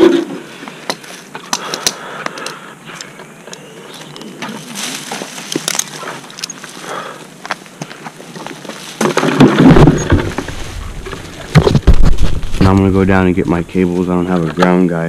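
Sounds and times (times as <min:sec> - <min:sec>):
branches and leaves rustling: 0:00.0 - 0:15.0
carabiners clicking and rattling: 0:05.5 - 0:06.7.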